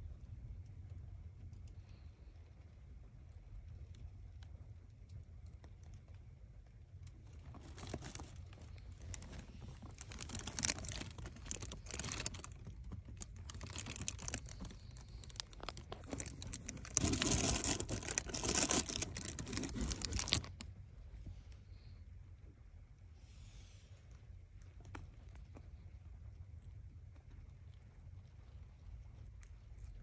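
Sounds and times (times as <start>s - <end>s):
cat scratching in cardboard box: 7.4s - 20.6s.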